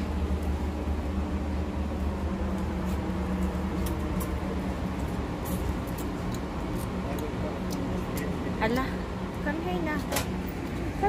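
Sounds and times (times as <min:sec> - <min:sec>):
elevator hum: 0:00.0 - 0:11.0.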